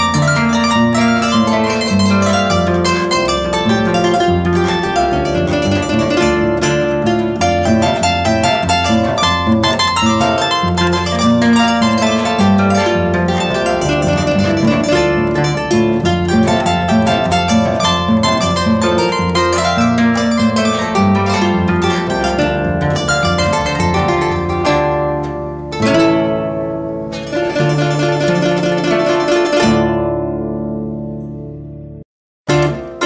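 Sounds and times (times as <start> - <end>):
steady bass line: 0.0 - 29.2
plucked-string notes: 0.0 - 33.0.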